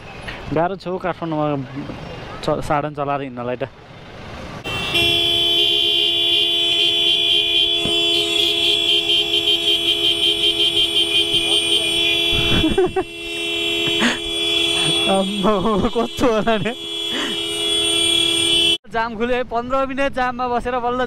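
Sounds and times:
vehicle horn sounding: 4.6 - 18.8.

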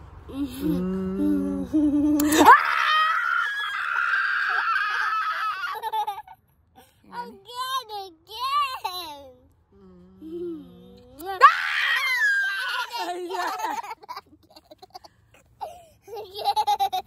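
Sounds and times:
boy laughing hard: 1.9 - 6.4, 12.0 - 17.0.

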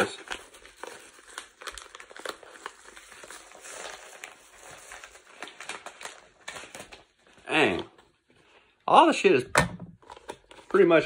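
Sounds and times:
paper envelope crinkling: 0.0 - 8.2.

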